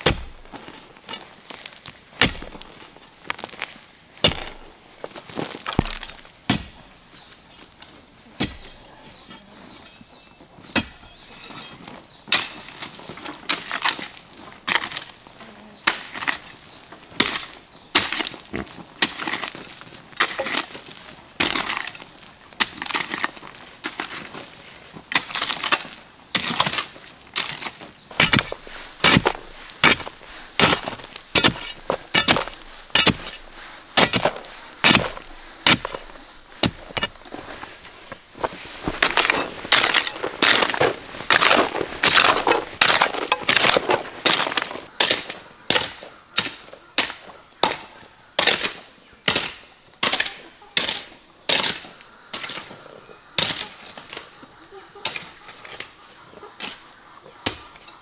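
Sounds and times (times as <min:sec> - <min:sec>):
sharp knocks and cracks: 0:00.0 - 0:00.4, 0:01.5 - 0:04.6, 0:25.1 - 0:33.4.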